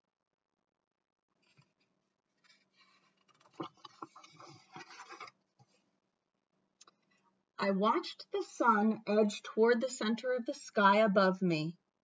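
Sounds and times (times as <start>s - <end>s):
book pages rustling: 1.4s - 5.9s.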